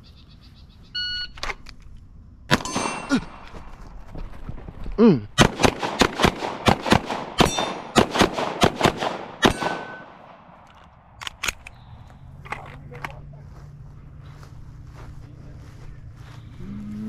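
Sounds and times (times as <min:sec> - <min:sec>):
rapid gunshots: 0:05.4 - 0:10.3.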